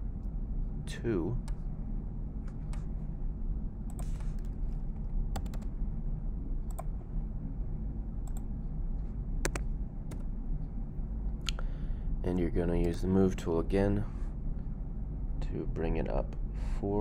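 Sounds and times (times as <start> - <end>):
low background hum: 0.0 - 17.0
keyboard keys clicking: 5.4 - 5.7, 9.4 - 10.2.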